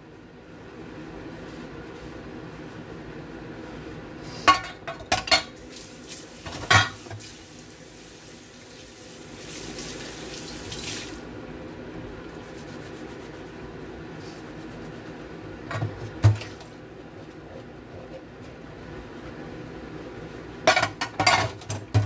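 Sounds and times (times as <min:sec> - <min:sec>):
tap water running onto bowl: 0:05.6 - 0:11.2
bowls and pot clinking: 0:06.6 - 0:07.0.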